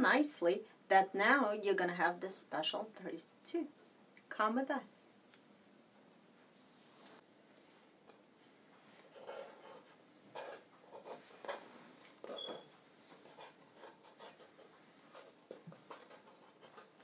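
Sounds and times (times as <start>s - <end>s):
pencil scratching on paper: 9.0s - 17.0s
pencil squeak: 12.2s - 12.8s.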